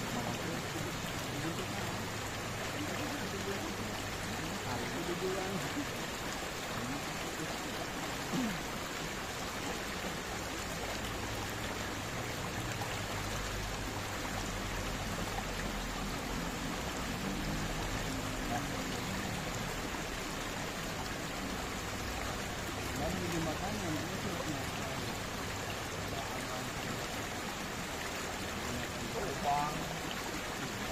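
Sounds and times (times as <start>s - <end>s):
river running over rocks: 0.0s - 30.9s.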